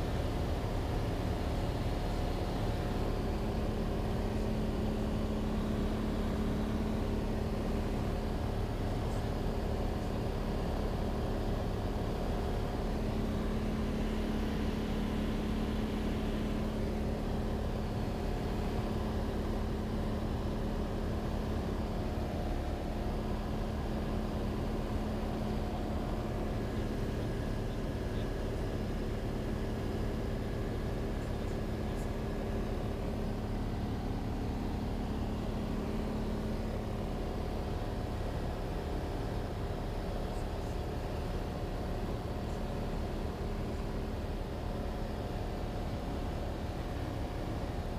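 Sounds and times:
propeller plane engine droning: 0.0 - 47.9.

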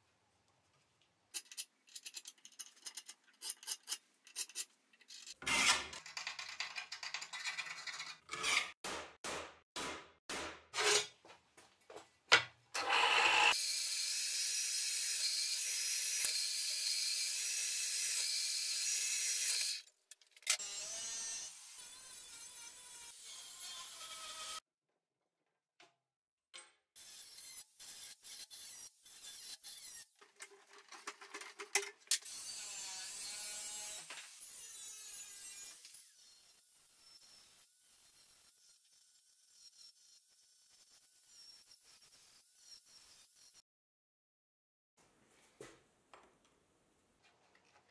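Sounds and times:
scriber scratching steel: 1.4 - 6.0
angle grinder cutting steel: 12.8 - 19.9.

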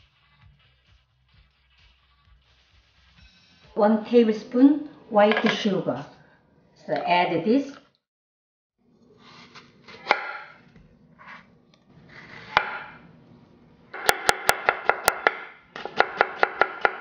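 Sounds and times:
knife slicing pear: 9.2 - 11.5, 12.1 - 12.9
fast chopping on cutting board: 14.0 - 17.0.

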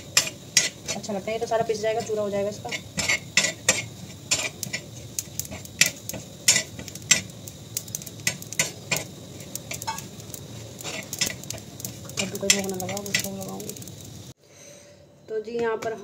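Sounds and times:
spoon scraping and clinking on pan: 0.0 - 1.1, 2.7 - 7.3, 10.8 - 13.3.

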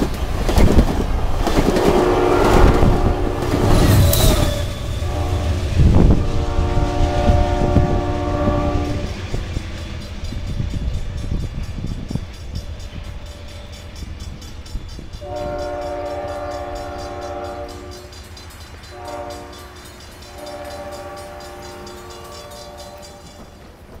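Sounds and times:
passing train rumble: 0.0 - 24.0
distant train horn blasts: 1.7 - 10.6, 15.1 - 23.7.

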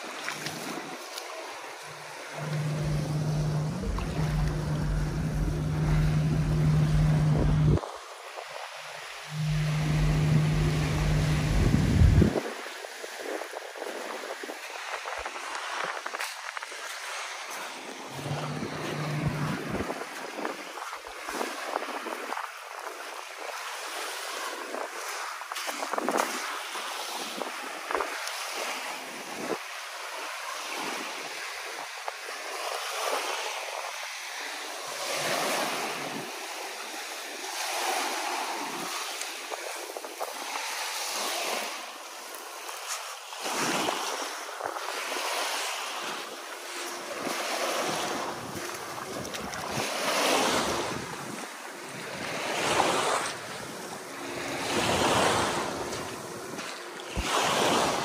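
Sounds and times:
wind buffeting microphone: 9.3 - 12.7, 18.0 - 22.4
waves washing against rocks: 34.6 - 58.0.

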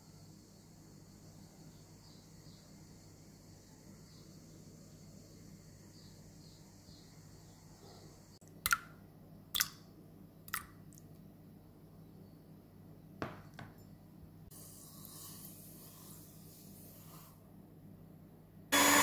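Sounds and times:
eggs cracking: 9.6 - 9.8.

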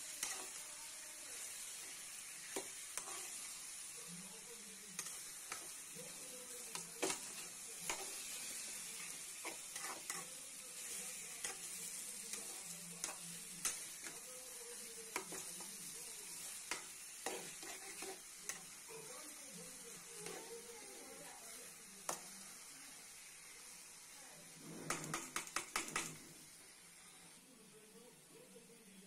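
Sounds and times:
curry sizzling in a pan: 0.0 - 29.0
spoon scraping a pan: 0.1 - 0.6, 1.4 - 3.6, 5.0 - 14.3, 15.1 - 15.8, 16.4 - 19.1, 20.0 - 21.2, 24.5 - 26.2.

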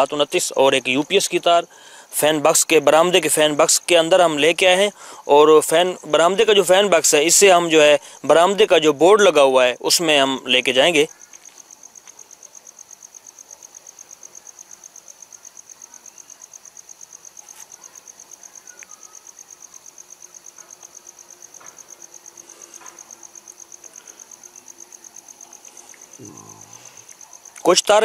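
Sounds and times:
cricket chirping: 0.0 - 28.0.

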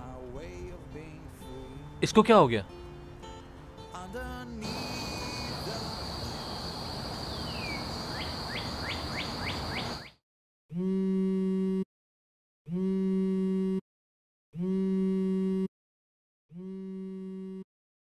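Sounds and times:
steady high drone: 4.6 - 7.6
even hiss: 4.6 - 9.9
bird whistling and chirping: 4.6 - 10.2
phone vibrating: 10.7 - 11.9, 12.7 - 13.8, 14.6 - 15.7, 16.5 - 17.7.

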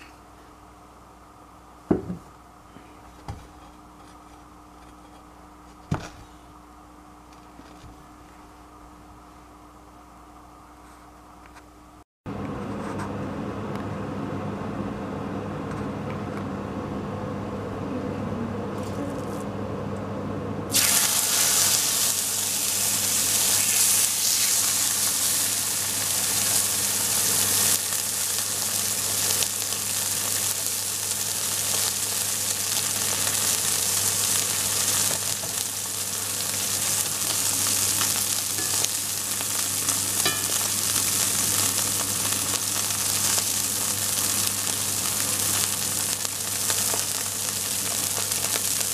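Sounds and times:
steak sizzling in skillet: 20.7 - 48.9.

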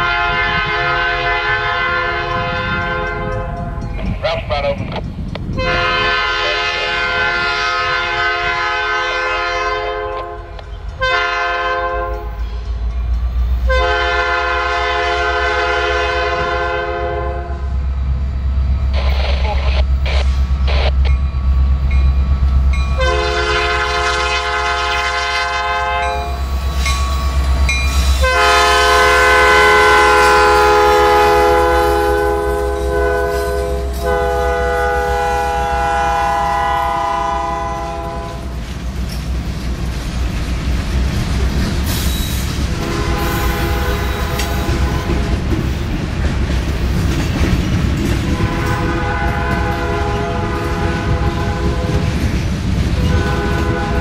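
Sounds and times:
train air horn blasts: 0.0 - 3.8, 5.6 - 12.5, 13.7 - 17.7, 23.0 - 26.4, 28.2 - 38.5, 42.7 - 45.3, 48.4 - 52.1, 53.0 - 54.0
diesel engines rumbling: 0.0 - 54.0.

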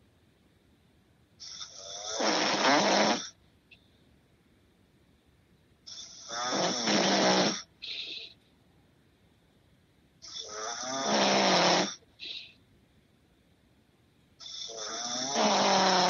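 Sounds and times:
person snoring: 1.4 - 3.3, 5.9 - 8.2, 10.2 - 12.4, 14.4 - 16.0.

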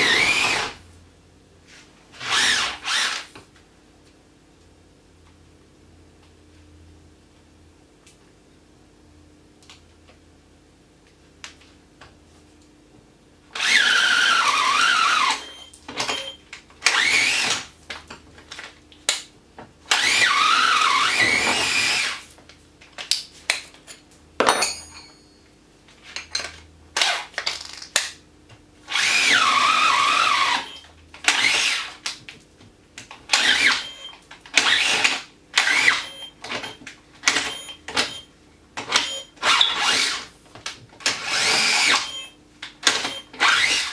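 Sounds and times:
cordless drill whining: 0.0 - 0.8, 2.2 - 3.3, 13.6 - 16.2, 16.9 - 17.6, 19.9 - 22.2, 28.9 - 31.9, 33.3 - 34.0, 34.6 - 36.7, 41.1 - 42.3, 43.0 - 43.9
drill drilling into timber: 0.0 - 0.8, 2.2 - 3.3, 13.6 - 15.4, 16.9 - 17.6, 19.9 - 22.2, 28.9 - 31.9, 33.3 - 33.9, 34.6 - 36.1, 39.4 - 40.2, 41.1 - 42.2, 43.4 - 43.9.

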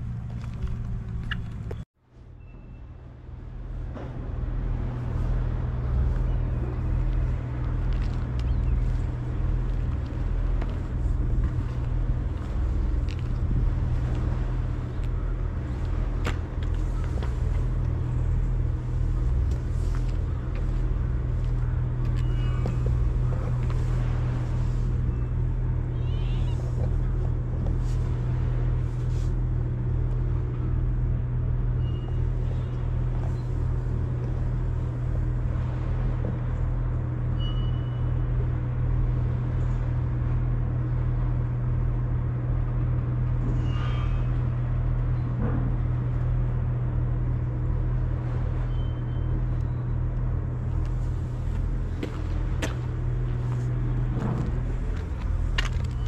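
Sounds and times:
engine idling: 3.6 - 43.6.

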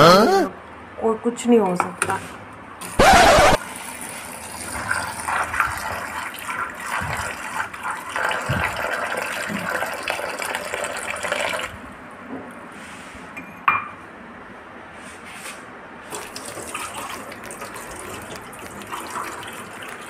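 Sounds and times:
water pouring into steel bowl: 16.1 - 20.0.

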